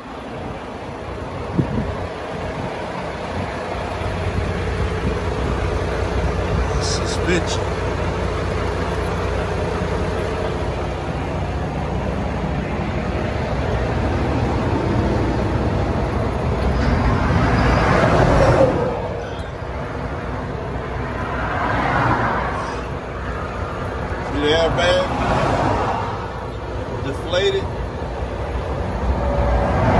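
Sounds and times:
freeway traffic rumble: 0.0 - 29.9
vehicle passing by: 13.9 - 19.6, 20.8 - 26.6, 29.0 - 29.9.

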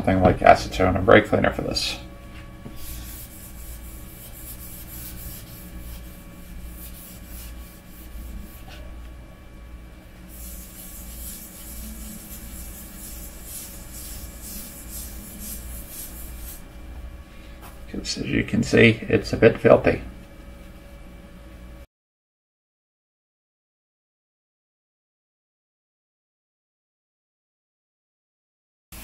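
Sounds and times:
paper towel rubbing metal plate: 2.7 - 9.0, 10.2 - 16.6.

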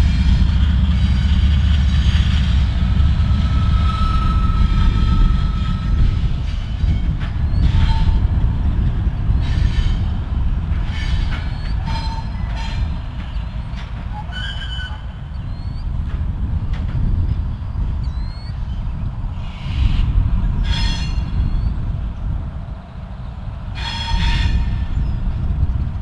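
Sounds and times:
diesel locomotives rumbling: 0.0 - 26.0
wheel squeals: 3.4 - 8.3, 10.9 - 15.9.

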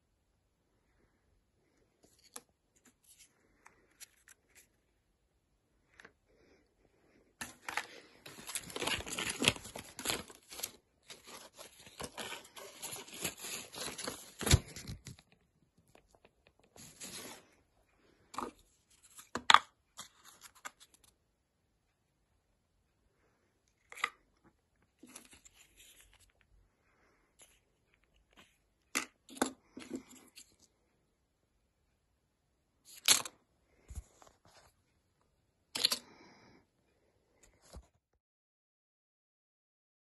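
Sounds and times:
plastic packaging tearing and crinkling: 8.3 - 15.2.

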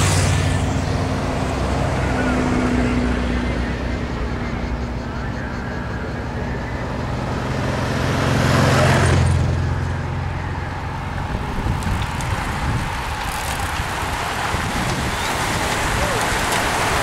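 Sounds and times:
racing bicycles rushing by: 0.0 - 17.0
motorcycle engine passing: 6.9 - 17.0.

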